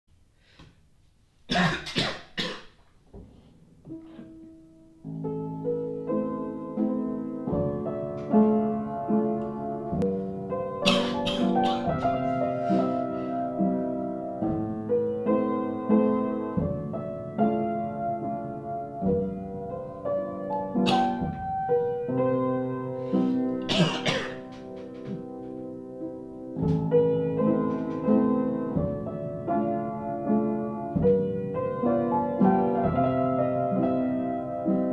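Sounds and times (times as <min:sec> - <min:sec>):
person coughing: 0:01.5 - 0:02.8, 0:10.9 - 0:12.1, 0:23.6 - 0:24.5
piano chords: 0:01.6 - 0:34.9.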